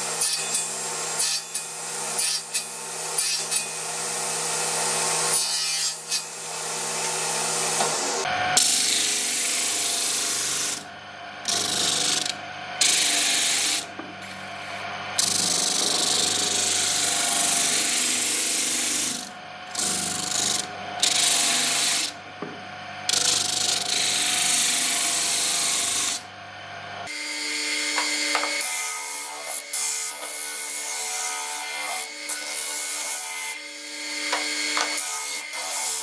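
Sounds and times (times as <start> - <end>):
electric motor humming: 6.3 - 26.2.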